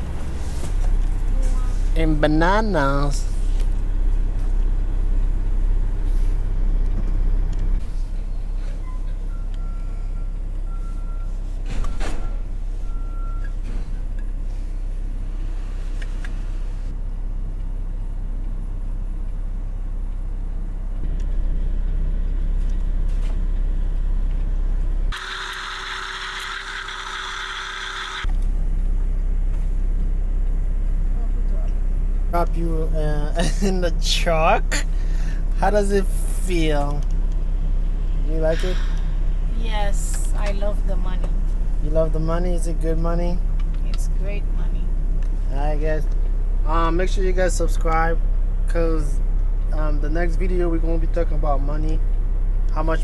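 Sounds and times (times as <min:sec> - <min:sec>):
truck engine idling: 0:12.3 - 0:53.0
small blender running: 0:25.1 - 0:28.3.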